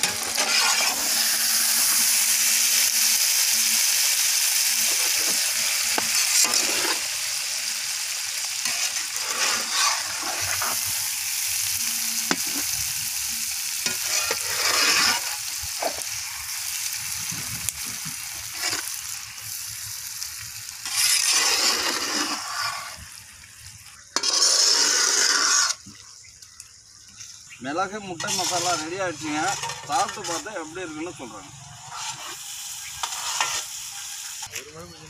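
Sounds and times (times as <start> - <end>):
metal spatula scraping a pan: 0.0 - 2.4, 4.5 - 7.1, 8.5 - 11.0, 12.2 - 12.7, 13.8 - 16.0, 18.4 - 19.0, 20.8 - 23.0, 24.1 - 25.8, 28.2 - 31.1, 31.8 - 34.5
oil sizzling in a pan: 0.0 - 34.6.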